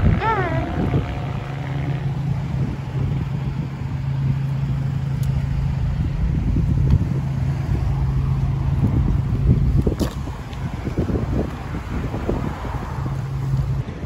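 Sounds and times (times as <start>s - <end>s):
low rumble: 0.0s - 14.0s
vehicle engine hum: 0.0s - 14.0s.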